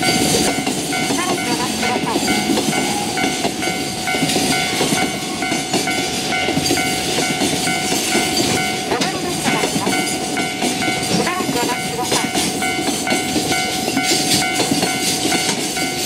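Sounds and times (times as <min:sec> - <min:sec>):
freight train clattering over rails: 0:00.0 - 0:16.0
level crossing warning bell: 0:00.0 - 0:16.0.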